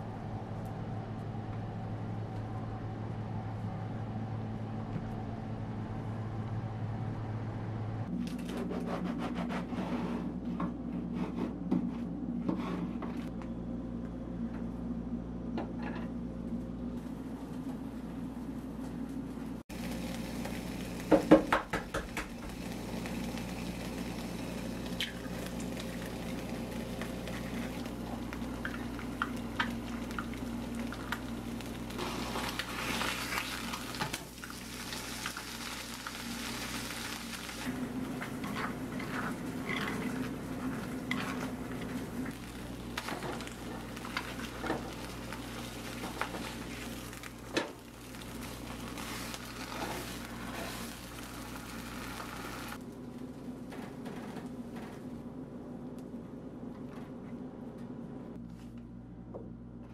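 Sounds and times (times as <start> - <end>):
ham and egg sizzling in frying pan: 19.7 - 52.8.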